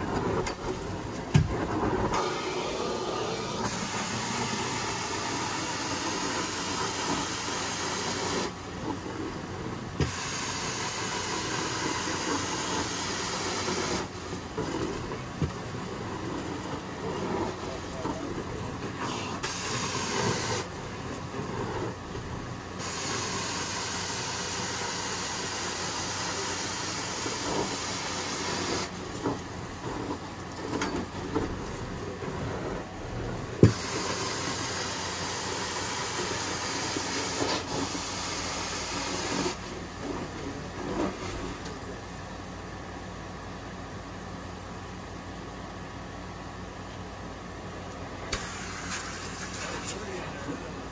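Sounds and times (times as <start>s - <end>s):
carpet cleaning wand hissing: 1.5s - 8.6s, 10.0s - 15.0s, 19.0s - 20.7s, 22.8s - 29.4s, 33.6s - 39.7s, 48.3s - 50.8s.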